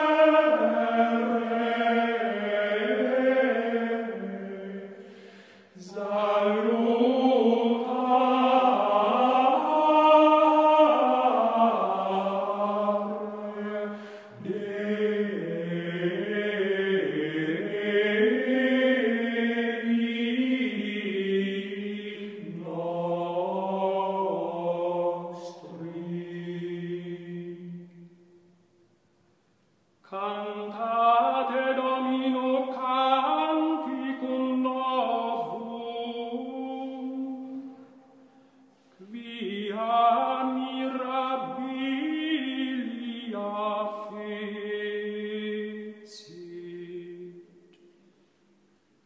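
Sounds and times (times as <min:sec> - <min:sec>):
person chanting slowly: 0:00.0 - 0:28.5, 0:30.0 - 0:48.2.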